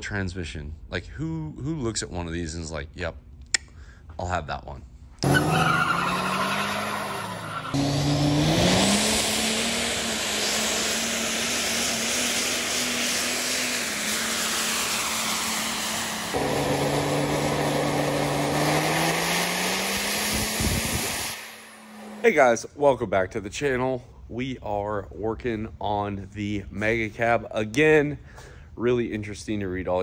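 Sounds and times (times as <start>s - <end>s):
diesel truck engine at full throttle: 5.2s - 22.2s.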